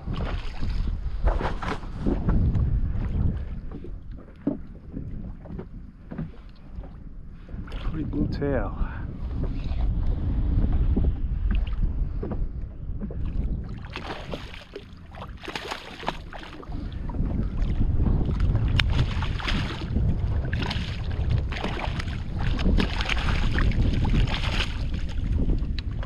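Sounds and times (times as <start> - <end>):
wind buffeting microphone: 0.0 - 26.0
fish thrashing in water: 13.7 - 17.0, 18.3 - 26.0.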